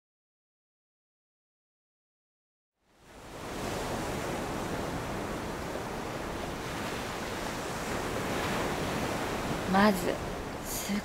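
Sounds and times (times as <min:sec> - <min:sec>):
ocean surf washing onto beach: 0:03.0 - 0:11.0
wind rumbling on microphone: 0:03.0 - 0:11.0.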